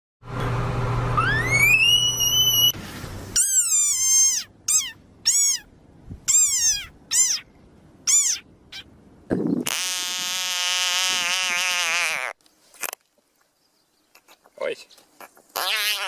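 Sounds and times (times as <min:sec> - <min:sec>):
frog high-pitched squeaks: 0:01.2 - 0:02.8, 0:03.4 - 0:05.7, 0:06.3 - 0:08.9, 0:09.6 - 0:12.4, 0:15.2 - 0:16.0
frog whistling squeal: 0:01.2 - 0:02.8, 0:03.4 - 0:05.7, 0:06.3 - 0:07.5, 0:08.1 - 0:08.4, 0:15.6 - 0:16.0.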